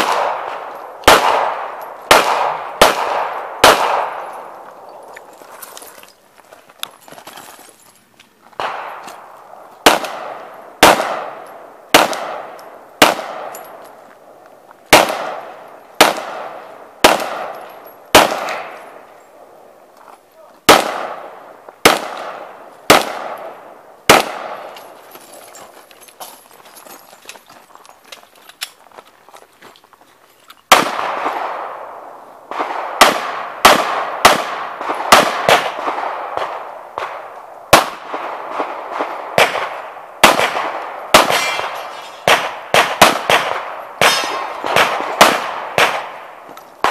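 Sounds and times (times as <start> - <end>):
gunshots with ringing echo: 0.0 - 5.2, 8.6 - 19.7, 20.7 - 25.0, 30.7 - 46.9.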